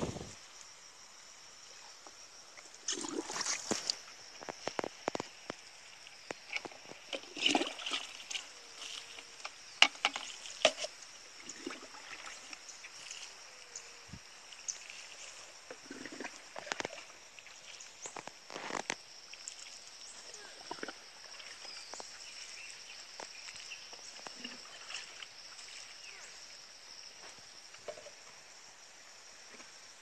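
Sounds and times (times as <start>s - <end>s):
high insect drone: 0.0s - 30.0s
water splashing onto soil: 2.8s - 5.6s, 6.4s - 10.8s.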